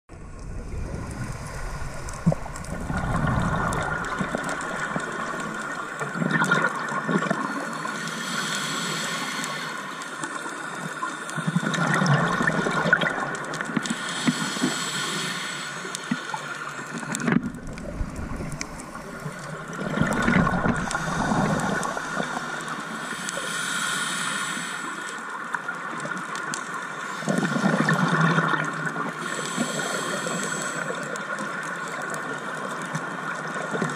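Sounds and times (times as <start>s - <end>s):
bubbly gurgling exhalations: 0.1s - 7.8s, 11.4s - 13.5s, 17.0s - 23.1s, 27.2s - 29.1s
hissing regulator inhalations: 7.8s - 10.4s, 13.8s - 25.4s, 29.2s - 31.2s.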